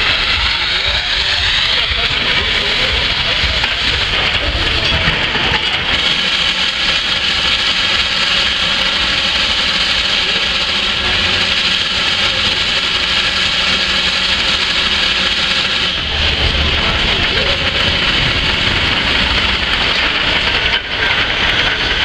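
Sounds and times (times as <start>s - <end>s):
hiss of venting steam: 0.0s - 22.0s
steam engines running: 0.0s - 22.0s.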